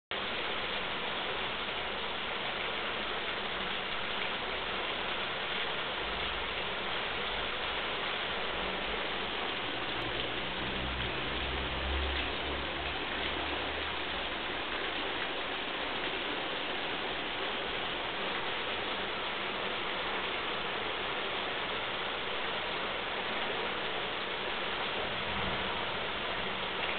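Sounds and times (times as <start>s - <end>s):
floodwater rushing: 0.2s - 26.9s
low rumble: 25.0s - 26.6s.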